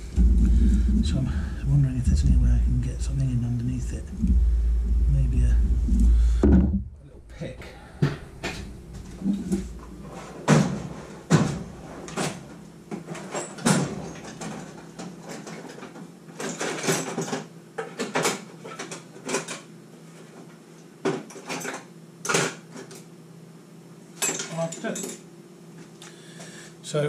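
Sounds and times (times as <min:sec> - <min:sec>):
hand tools clinking on metal bench: 0:24.2 - 0:25.2.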